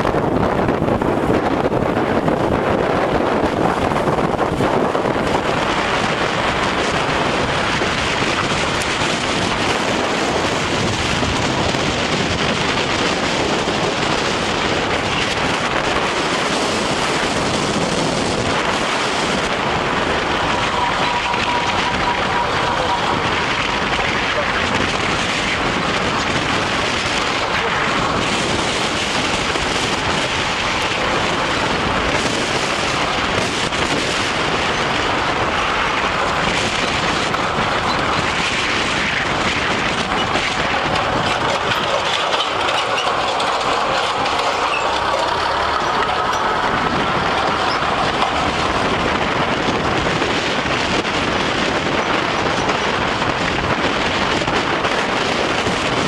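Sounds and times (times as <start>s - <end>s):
tyres and wind rushing: 0.0s - 56.0s
tyres knocking over road joints: 34.7s - 49.9s.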